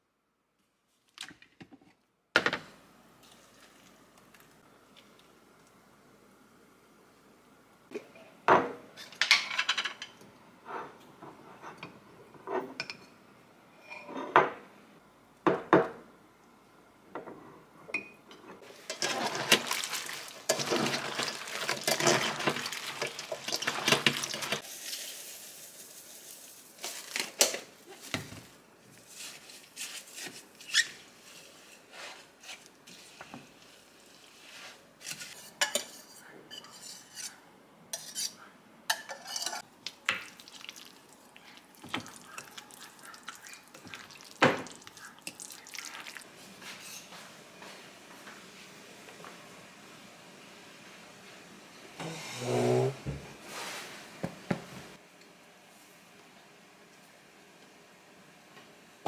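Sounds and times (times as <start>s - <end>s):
wet rustling of cabbage leaves: 18.7s - 28.1s.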